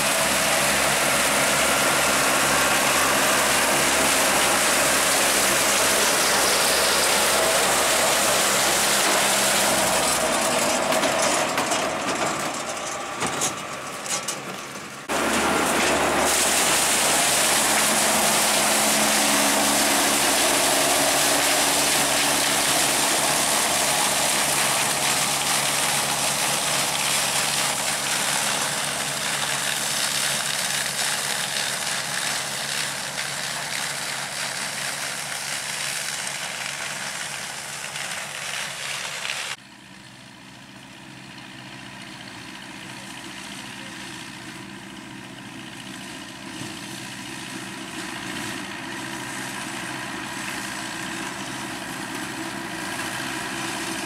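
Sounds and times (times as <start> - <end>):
tractor engine running: 0.0 - 54.0
loud rushing noise: 15.1 - 26.0.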